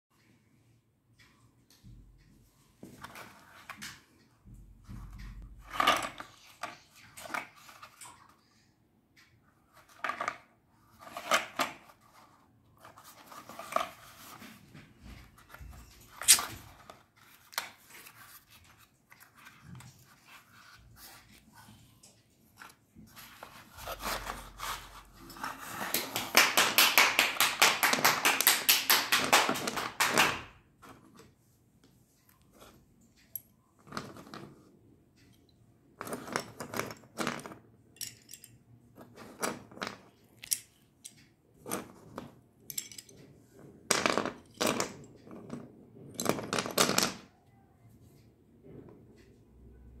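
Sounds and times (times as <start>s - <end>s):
pencils rattling in box: 9.7s - 14.6s, 22.6s - 30.5s.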